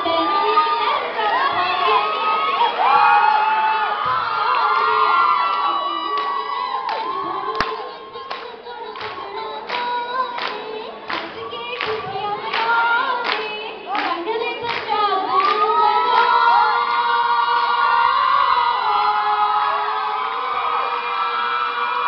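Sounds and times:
hand-clapping: 0:06.2 - 0:16.3.

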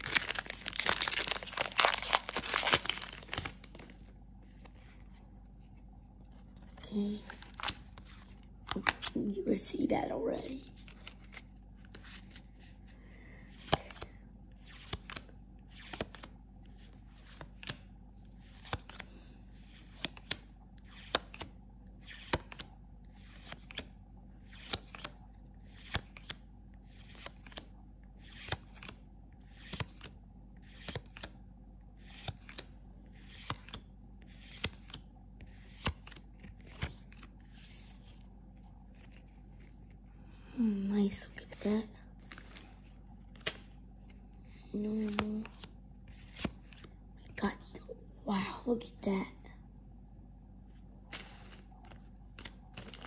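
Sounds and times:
trading cards snapping: 0:43.3 - 0:43.7.

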